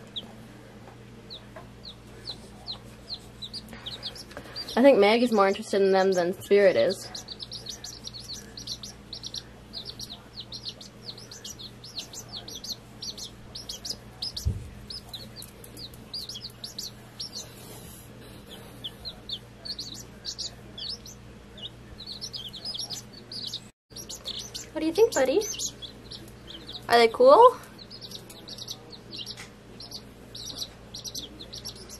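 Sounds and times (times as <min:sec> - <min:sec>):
chicks peeping: 0:00.0 - 0:31.9
low thump: 0:14.4 - 0:14.8.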